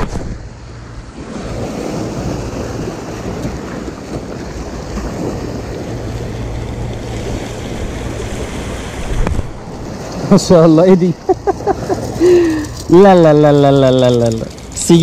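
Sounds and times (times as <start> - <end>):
wind rumbling on microphone: 0.0 - 10.5
waves washing over pebbles: 0.0 - 15.0.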